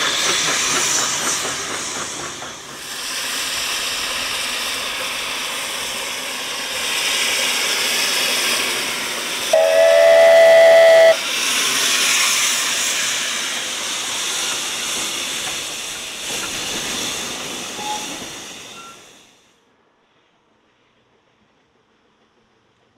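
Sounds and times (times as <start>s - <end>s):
steam locomotive hissing: 0.0s - 19.5s
steam whistle blast: 9.5s - 11.2s.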